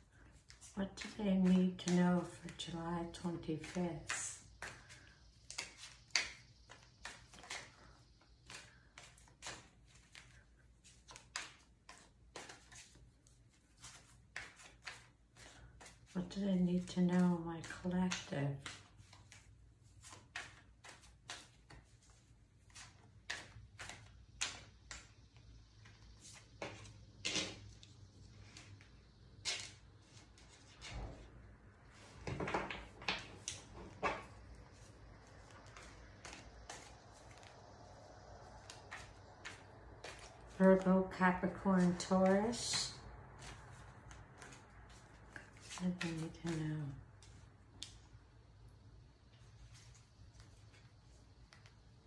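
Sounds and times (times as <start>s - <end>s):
cards being shuffled: 0.2s - 25.2s, 32.0s - 48.1s.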